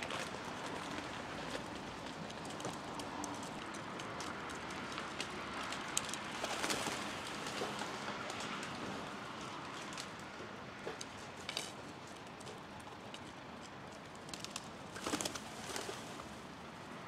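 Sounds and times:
pigeon wingbeats: 0:00.0 - 0:08.4, 0:14.1 - 0:16.3.

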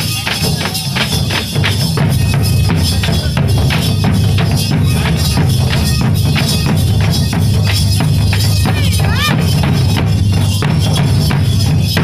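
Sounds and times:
dhol drums beating: 0:00.0 - 0:12.0.

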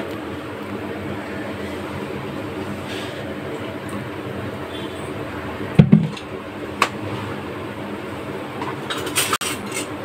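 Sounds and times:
gas burner running: 0:00.0 - 0:10.0
heavy knock: 0:05.8 - 0:06.1.

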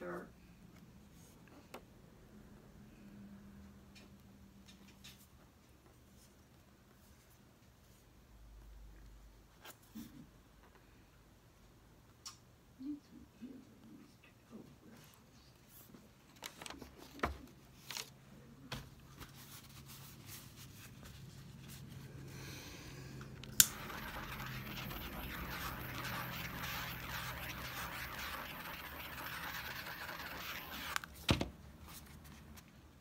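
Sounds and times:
torch igniter click: 0:23.5 - 0:23.8
torch flame hissing: 0:23.6 - 0:31.0.

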